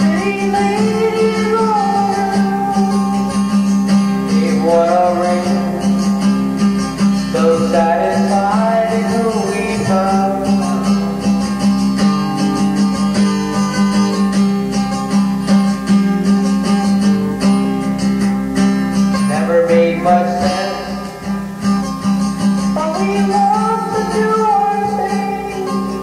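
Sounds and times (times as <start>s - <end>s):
person singing: 0.0s - 14.3s, 19.1s - 21.2s, 22.6s - 26.0s
guitar music: 0.0s - 26.0s.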